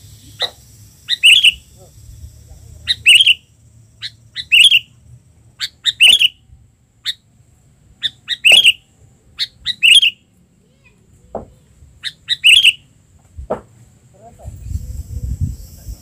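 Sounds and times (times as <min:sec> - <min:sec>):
bulbul chattering calls: 0:00.0 - 0:06.4, 0:08.0 - 0:10.3, 0:12.0 - 0:12.9.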